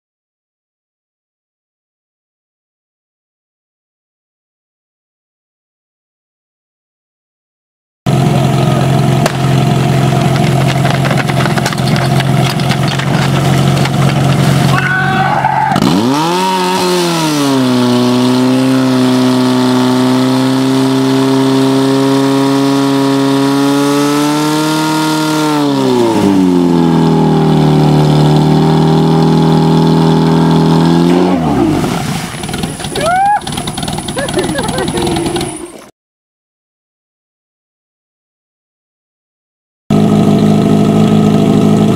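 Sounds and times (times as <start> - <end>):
fire pump engine revving: 8.1 - 14.8, 15.4 - 35.9.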